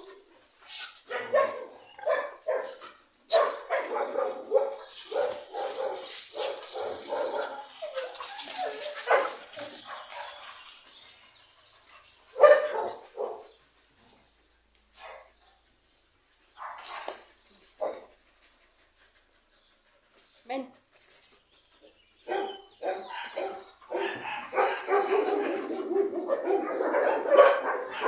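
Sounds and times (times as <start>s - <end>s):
dogs barking and yipping: 0.0s - 15.6s, 21.8s - 28.0s.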